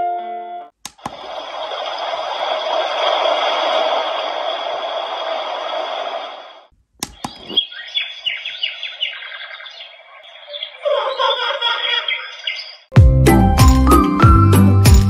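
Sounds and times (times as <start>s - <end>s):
clicks: 0.8s - 1.3s, 7.0s - 7.6s
hiss-like alarm sound: 1.0s - 6.7s
recorded birdsong chirps: 7.0s - 12.9s.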